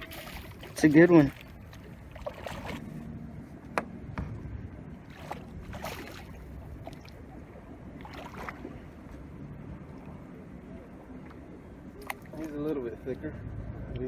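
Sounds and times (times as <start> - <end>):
water splashing against boat: 0.0 - 12.9
low rumble: 1.6 - 12.0
knocks against boat: 3.7 - 4.4.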